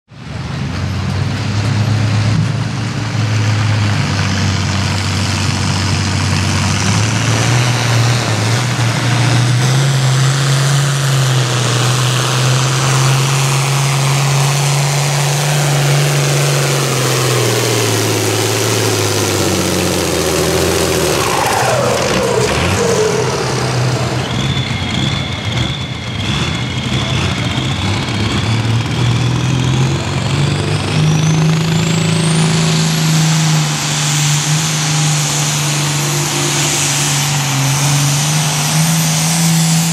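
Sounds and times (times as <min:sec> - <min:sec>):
tractor diesel engine under load: 0:00.1 - 0:39.9
high wavering whine: 0:12.0 - 0:27.6.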